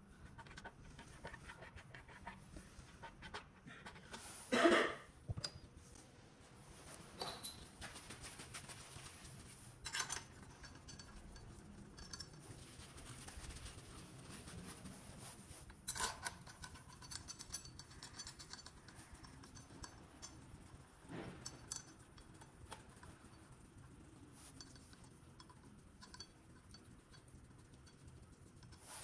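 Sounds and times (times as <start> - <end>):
small metallic clicks and clinks: 7.2 - 7.8, 9.8 - 12.7, 15.7 - 28.9.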